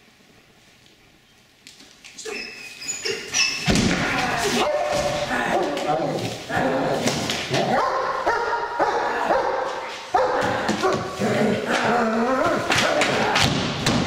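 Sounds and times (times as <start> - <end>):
dog barking and whining: 4.4 - 5.8, 7.6 - 11.2.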